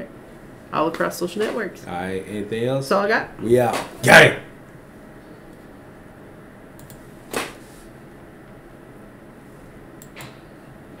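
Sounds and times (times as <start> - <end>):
faint click: 6.8 - 7.0.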